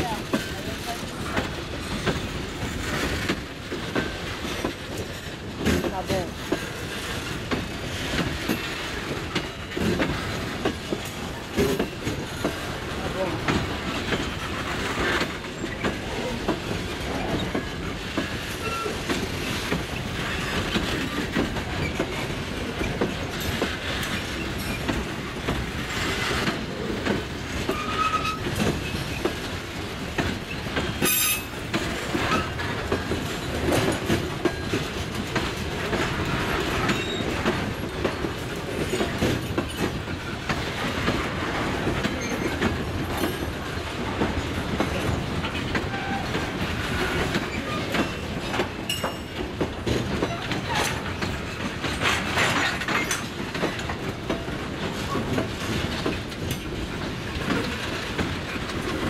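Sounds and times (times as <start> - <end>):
freight train rumbling past: 0.0 - 59.0
wheels clicking over rail joints: 0.0 - 59.0
wheel squeals: 18.6 - 19.0, 27.7 - 29.1, 36.8 - 37.4.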